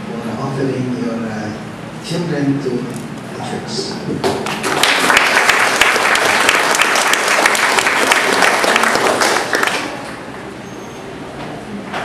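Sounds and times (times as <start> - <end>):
crowd applauding: 4.4 - 10.1.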